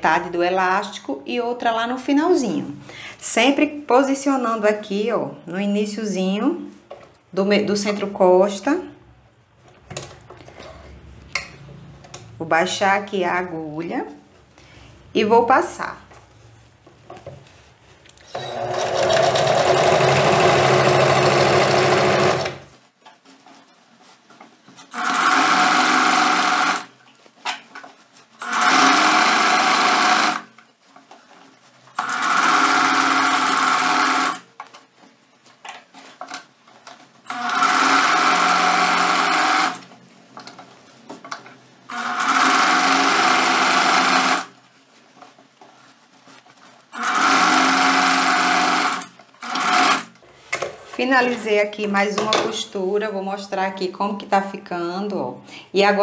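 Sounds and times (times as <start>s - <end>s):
sewing machine stitching: 18.3s - 22.7s, 24.9s - 26.9s, 28.4s - 30.5s, 32.0s - 34.4s, 37.2s - 39.9s, 41.9s - 44.5s, 46.9s - 50.8s.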